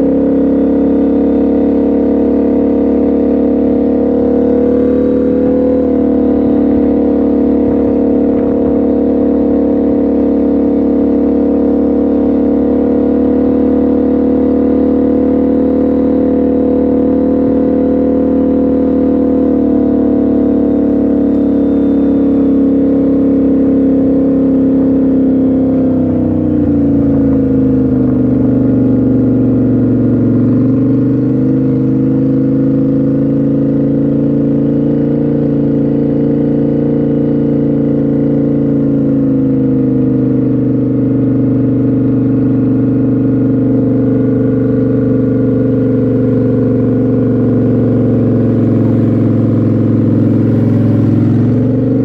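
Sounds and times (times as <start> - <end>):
motorbike engine running: 0.0 - 52.0.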